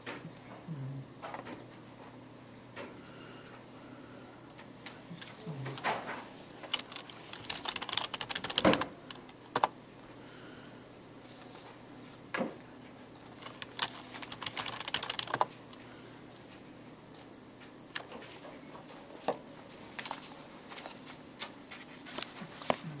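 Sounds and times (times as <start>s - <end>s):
faint steady hum: 0.0s - 23.0s
typing on computer keyboard: 5.8s - 9.8s, 13.2s - 15.6s.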